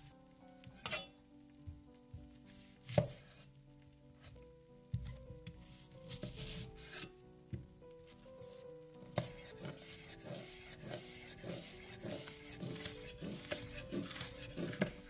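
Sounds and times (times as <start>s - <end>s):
soft background music: 0.0s - 15.0s
food grated on a grater: 9.2s - 15.0s.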